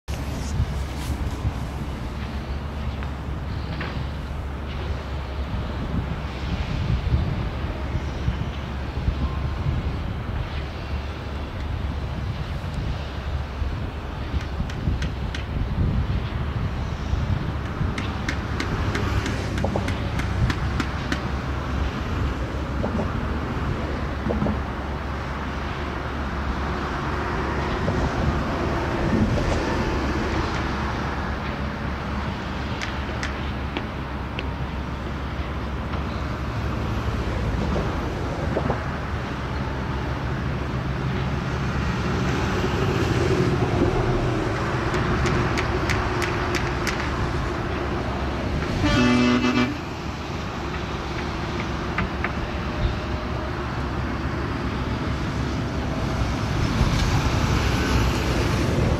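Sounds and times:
road traffic: 0.0 - 58.9
heavy machinery rumble: 0.1 - 58.9
vehicle horn: 48.7 - 49.9.

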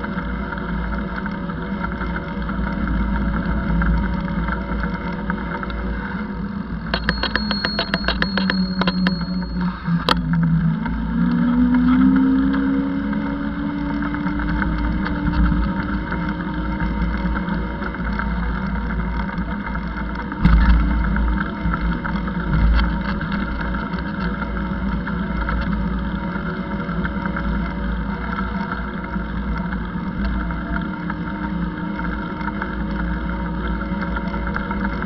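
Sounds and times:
wind and road rumble: 10.1 - 35.0.

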